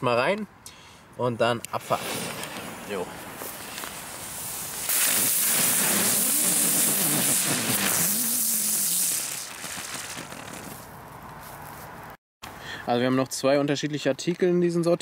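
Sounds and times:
fireworks spraying sparks hiss: 0:01.7 - 0:10.9
spinning fireworks buzzing hum: 0:01.8 - 0:11.0.

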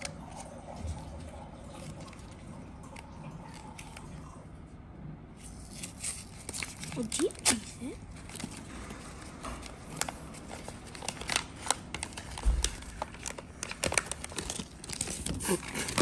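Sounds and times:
paper wrapping crinkling and tearing: 0:05.4 - 0:16.0.

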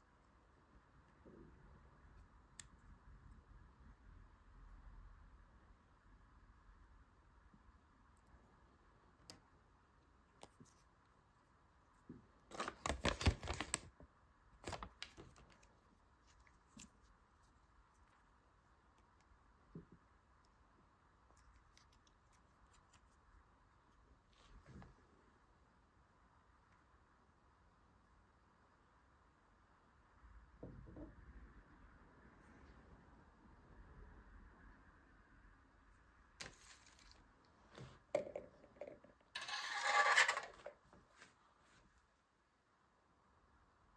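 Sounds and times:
toy and paper handling crackles: 0:12.4 - 0:13.9.

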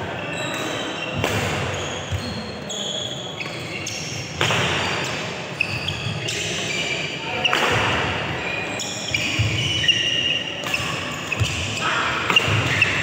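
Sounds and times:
sneakers squeaking on court: 0:00.1 - 0:13.0
racket striking shuttlecock: 0:12.3 - 0:13.0.

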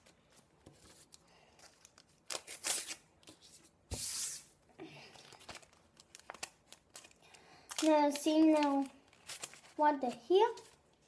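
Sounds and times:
foil wrapper tearing and crinkling: 0:01.6 - 0:03.0, 0:05.3 - 0:10.2.

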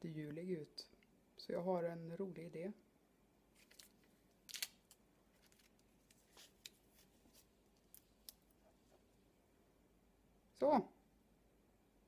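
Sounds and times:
faint paper rustles and clicks: 0:03.6 - 0:09.0.

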